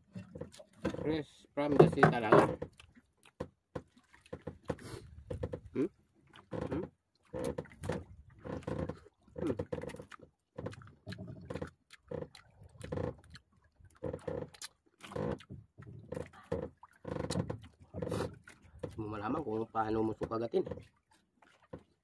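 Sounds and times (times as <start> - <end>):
man chewing mouth noises: 2.7 - 3.4, 4.8 - 6.9, 8.6 - 15.6.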